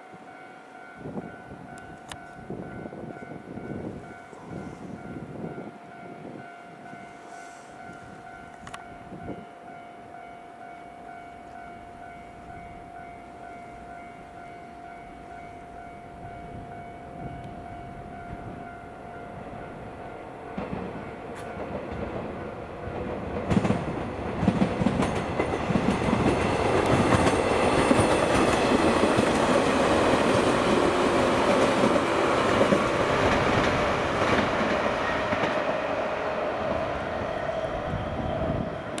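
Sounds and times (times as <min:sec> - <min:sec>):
train wheels clattering on rails: 0:20.5 - 0:37.7.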